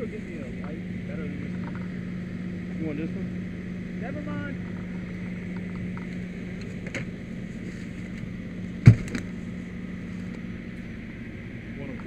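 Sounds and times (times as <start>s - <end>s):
engine hum: 0.0s - 12.0s
sharp loud clunk: 8.8s - 9.3s.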